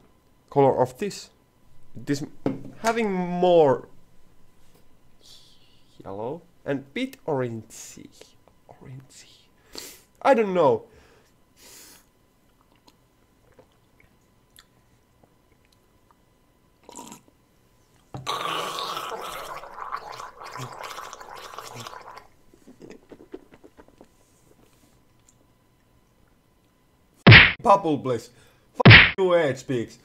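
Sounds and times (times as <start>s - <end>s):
wet gargling: 16.8s - 17.2s, 18.2s - 24.0s.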